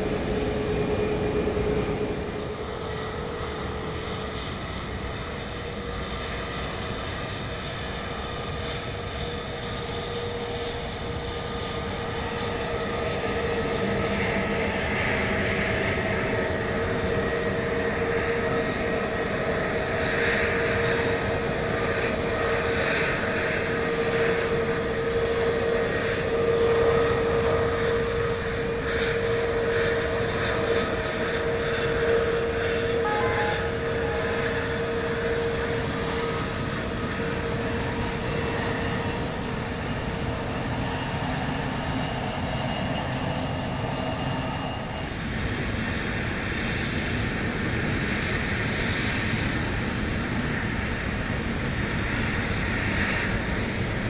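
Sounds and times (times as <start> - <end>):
jet engines whining: 0.0 - 54.0.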